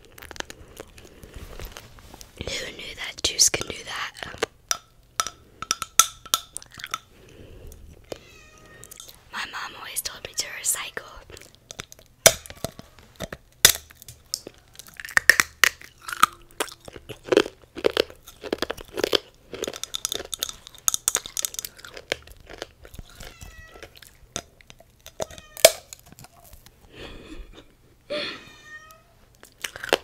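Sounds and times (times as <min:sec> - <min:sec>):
chewing crunchy candy glass: 0:00.0 - 0:01.8, 0:02.4 - 0:08.2, 0:10.7 - 0:26.8, 0:29.4 - 0:30.0
sharp cracks of biting: 0:04.2 - 0:07.1, 0:11.3 - 0:26.7.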